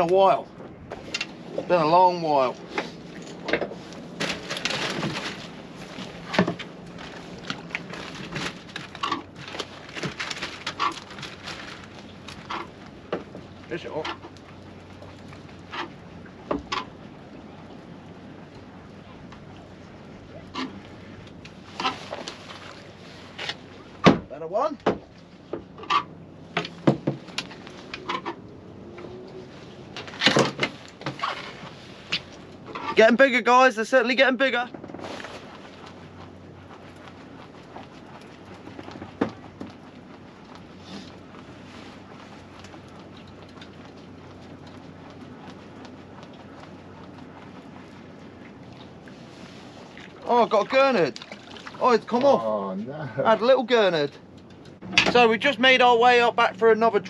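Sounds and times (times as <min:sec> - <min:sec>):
fishing gear knocking in boat: 0:03.3 - 0:11.4, 0:24.0 - 0:28.4.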